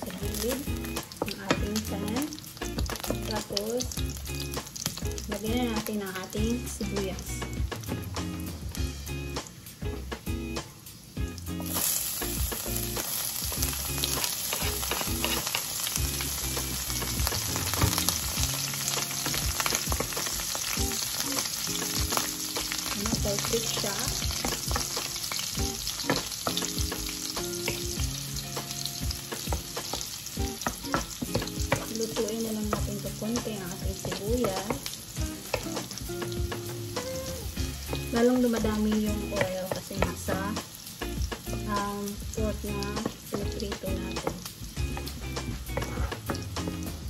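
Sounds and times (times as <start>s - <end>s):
meat and onions sizzling in oil: 0.0s - 47.0s.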